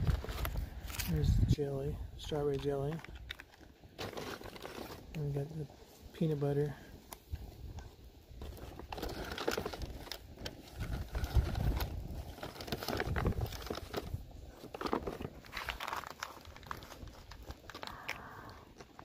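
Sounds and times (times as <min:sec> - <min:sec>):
foil packets crinkling: 0:02.5 - 0:05.4, 0:08.4 - 0:19.0.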